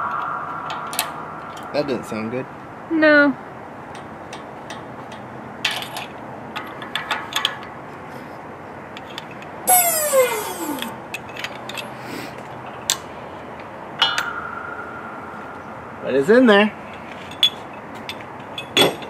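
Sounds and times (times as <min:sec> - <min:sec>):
metal squeal falling in pitch: 0:00.0 - 0:02.8, 0:09.7 - 0:10.9, 0:14.0 - 0:16.6.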